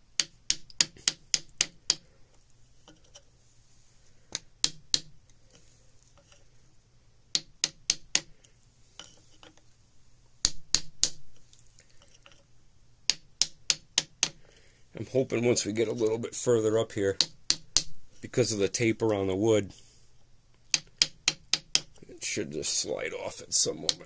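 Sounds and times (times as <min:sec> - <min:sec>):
mallet tapping wood block on metal: 0:00.1 - 0:02.0, 0:04.4 - 0:05.2, 0:07.3 - 0:08.3, 0:10.4 - 0:11.3, 0:13.1 - 0:14.4, 0:17.2 - 0:18.0, 0:20.7 - 0:22.0.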